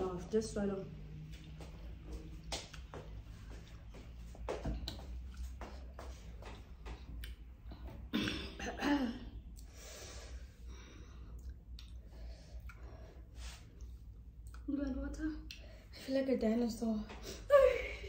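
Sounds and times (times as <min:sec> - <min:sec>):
woman breathing heavily: 0:09.6 - 0:14.1
mouth and chewing clicks: 0:11.4 - 0:12.9.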